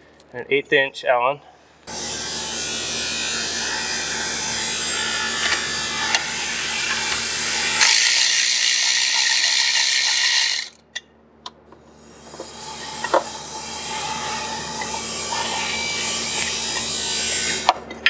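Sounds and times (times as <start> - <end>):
electric ratchet running: 1.9 - 10.8.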